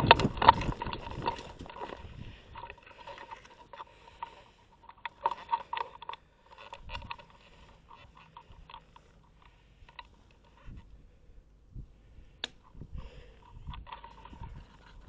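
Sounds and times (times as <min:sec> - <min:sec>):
rustling: 0:00.0 - 0:11.2, 0:12.2 - 0:15.0
sharp clicks: 0:12.4 - 0:14.8.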